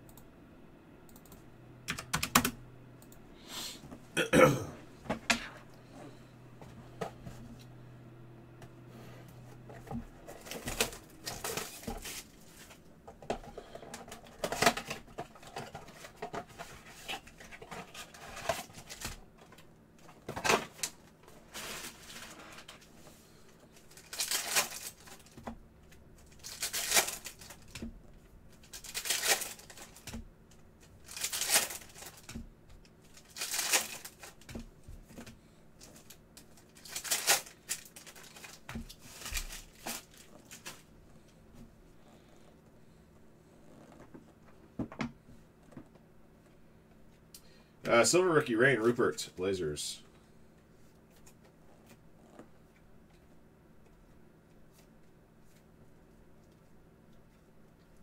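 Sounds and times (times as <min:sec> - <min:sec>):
card packs being handled: 0:09.6 - 0:27.9, 0:28.6 - 0:30.2, 0:30.8 - 0:32.4, 0:33.0 - 0:41.0
wrapper ripping: 0:23.9 - 0:25.3, 0:26.3 - 0:27.7, 0:28.6 - 0:30.0, 0:31.0 - 0:32.3, 0:33.1 - 0:34.5, 0:35.9 - 0:40.9.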